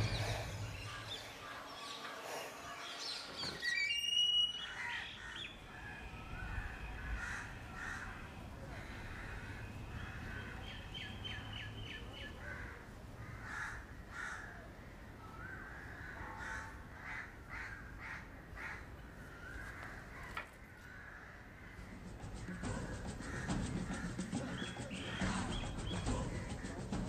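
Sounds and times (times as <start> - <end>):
crows cawing: 4.6 - 10.8, 12.4 - 26.8.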